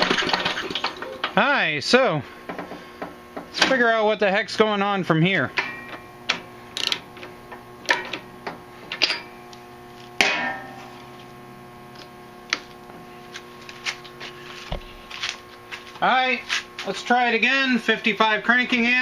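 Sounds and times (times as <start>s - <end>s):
steady hum: 0.0s - 19.0s
ringing metal clank: 5.6s - 6.1s, 9.0s - 9.4s, 10.2s - 10.9s.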